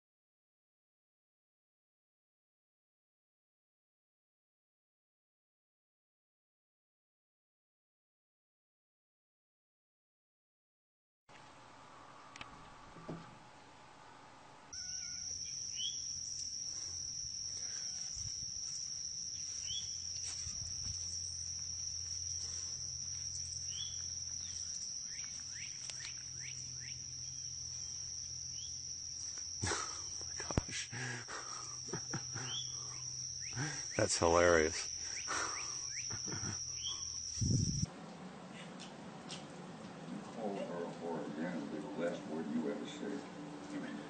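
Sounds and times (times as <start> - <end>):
insects trilling: 14.7 - 37.9
faint chirps: 14.8 - 37.9.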